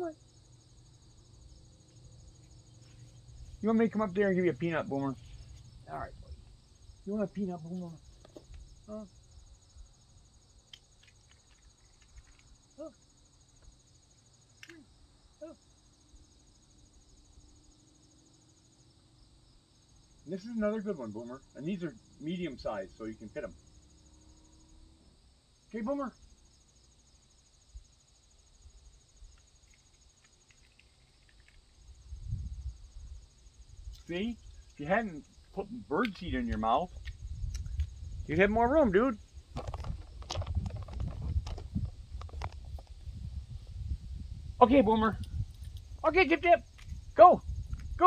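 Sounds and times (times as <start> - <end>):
insects trilling: 0.0 - 48.0
faint ticks: 10.6 - 12.9, 29.2 - 31.8, 35.4 - 38.0.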